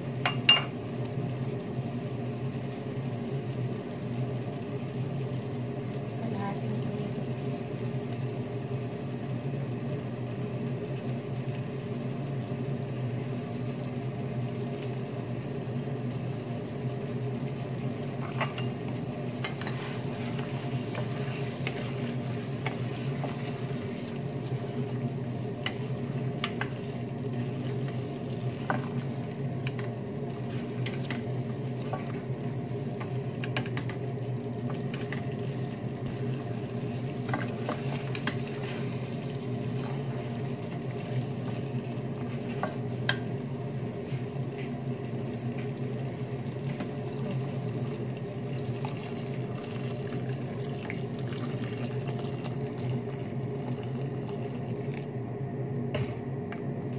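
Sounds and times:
steady low hum: 0.0 - 56.9
wooden spoon stirring in pot: 17.1 - 55.1.

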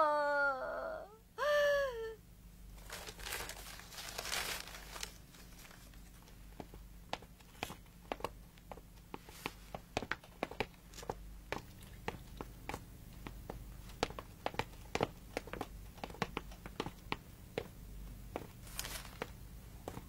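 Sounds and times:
rustling and crinkling: 2.7 - 16.8, 18.4 - 20.0.

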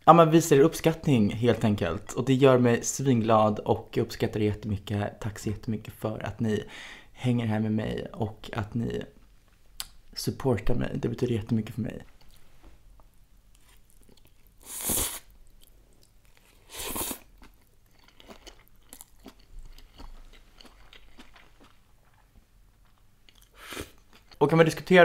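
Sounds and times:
chewing with small crunches: 13.5 - 14.6, 15.4 - 24.4
slurping noodles: 14.6 - 15.3, 16.7 - 17.3.

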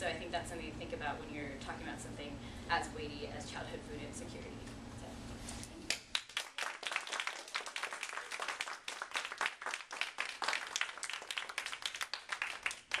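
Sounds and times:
small audience applauding: 5.9 - 13.0.

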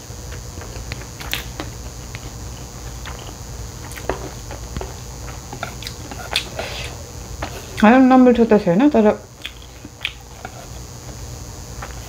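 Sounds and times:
person chewing noodles: 0.2 - 7.8, 9.3 - 12.0
wet mouth clicks: 9.4 - 10.3.

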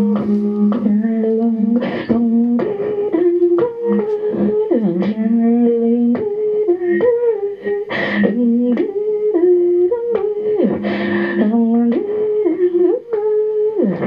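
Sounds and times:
electronic vocal noise tones: 0.0 - 7.6.

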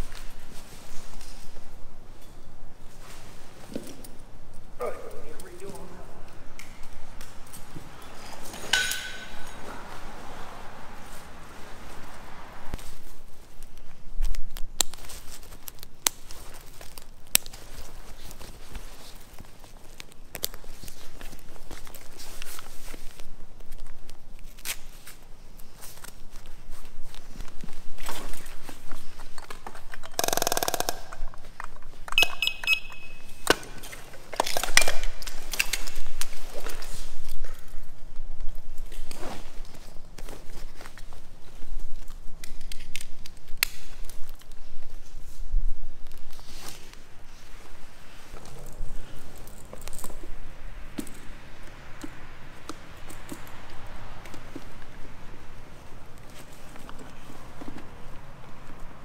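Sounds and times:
heavy coat fabric rustling: 0.0 - 29.6, 35.3 - 42.7, 43.8 - 59.0
harness buckles clicking and clunking: 8.0 - 9.8, 29.3 - 36.0
high electronic beeps: 32.2 - 33.5.

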